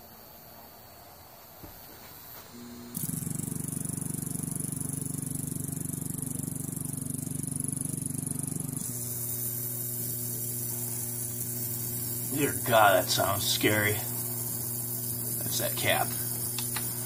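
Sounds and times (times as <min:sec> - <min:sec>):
electronic board buzzing: 0:01.6 - 0:17.0
high hiss: 0:08.1 - 0:17.0.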